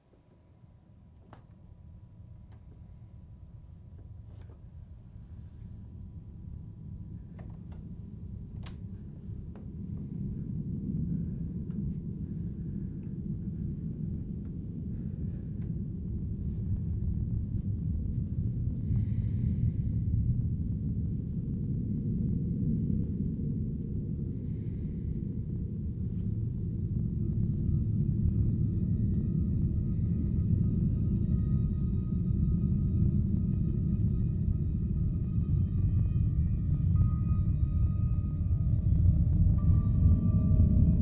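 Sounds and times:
low rumbling drone: 0.0s - 41.0s
man breathing in sleep: 18.7s - 20.7s, 24.2s - 26.4s, 29.7s - 30.8s.

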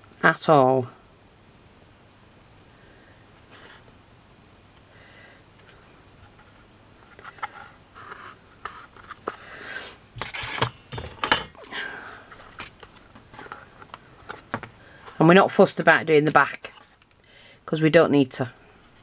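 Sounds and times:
clicks and scrapes of handling: 5.6s - 9.4s, 10.2s - 11.6s.

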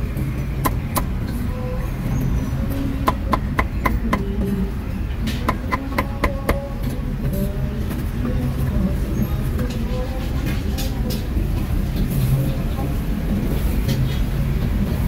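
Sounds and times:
cleaver chopping on wooden block: 5.5s - 6.6s.

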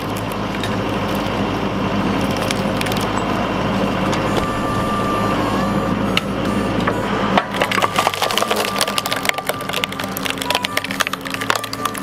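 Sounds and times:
tractor engine running: 0.0s - 12.0s
high hydraulic whine: 1.4s - 7.9s
wood cracking and snapping: 2.1s - 3.2s, 7.4s - 12.0s.

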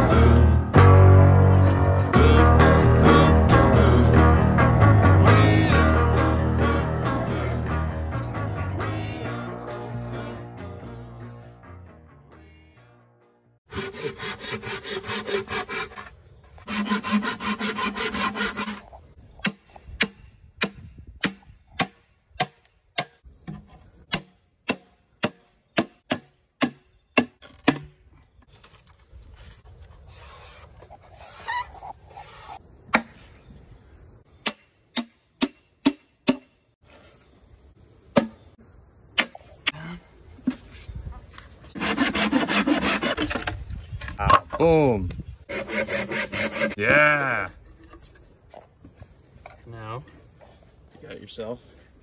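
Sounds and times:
saw rasping through bamboo: 13.7s - 19.6s, 30.0s - 32.6s, 41.7s - 43.6s, 45.5s - 46.8s
hatchet knocking into bamboo: 19.4s - 28.0s, 34.4s - 36.6s, 38.2s - 38.4s.

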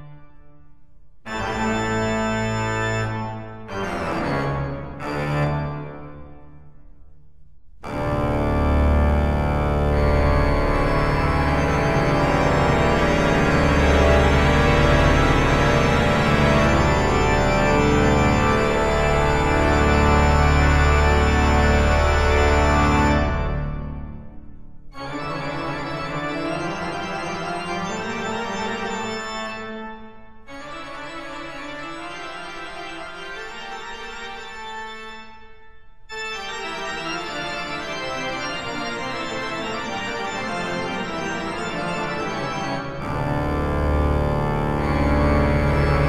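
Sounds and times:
organ chords: 1.2s - 6.4s, 7.8s - 46.0s.

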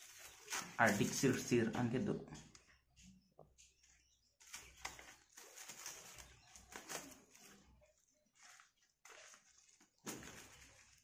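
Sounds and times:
envelope and plastic wrapping crinkling: 0.0s - 1.5s, 4.4s - 11.0s.

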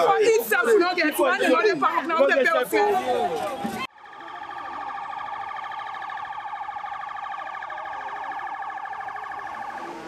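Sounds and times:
police siren warbling: 3.9s - 10.0s.

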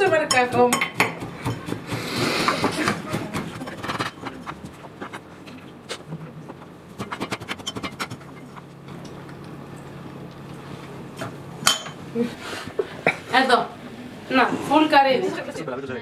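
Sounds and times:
pestle crushing nuts in metal mortar: 0.0s - 5.3s, 6.5s - 9.1s.

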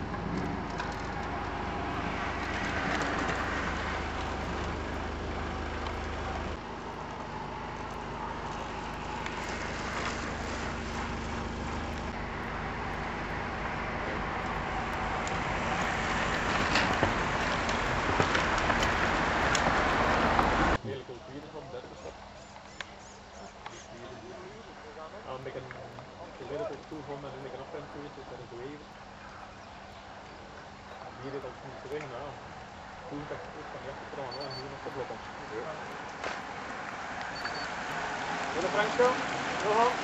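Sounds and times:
passing motor vehicles rushing: 0.0s - 20.8s, 30.7s - 40.0s.

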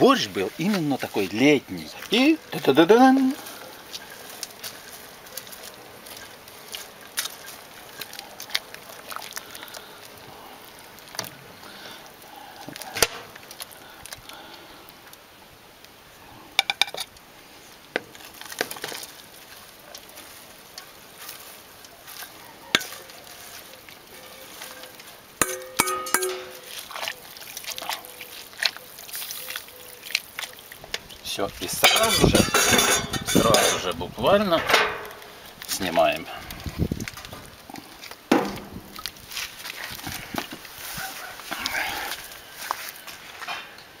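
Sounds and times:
short metallic ring: 25.4s - 26.7s
metal ladle scraping steel pot: 25.4s - 26.9s, 31.7s - 34.0s.

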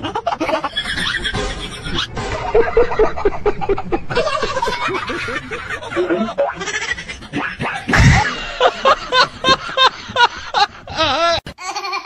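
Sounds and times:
person laughing: 0.0s - 12.0s
loud slap-like thump: 8.0s - 8.3s.

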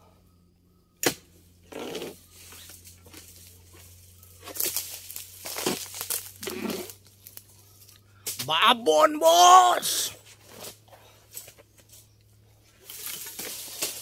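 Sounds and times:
dry fronds scraping and tearing: 2.3s - 7.5s, 12.7s - 14.0s.

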